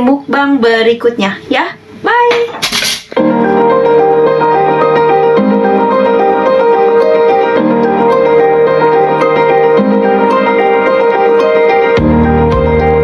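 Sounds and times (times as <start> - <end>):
piano playing sustained chords: 3.2 - 13.0.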